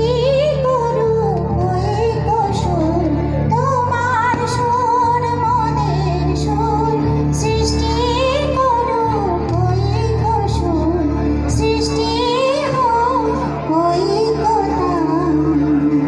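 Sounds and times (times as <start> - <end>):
woman singing into microphone: 0.0 - 16.0.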